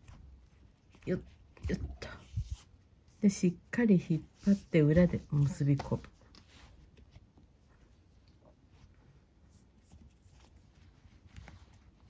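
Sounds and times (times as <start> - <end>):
cord rustling: 0.0 - 3.2, 4.2 - 12.0.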